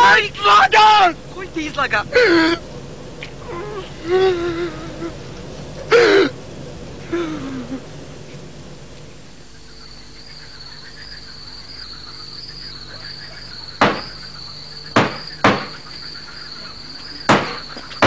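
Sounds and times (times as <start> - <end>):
crickets chirping: 0.0 - 18.0
sharp knocks: 13.8 - 14.2, 15.0 - 15.8, 17.3 - 18.0.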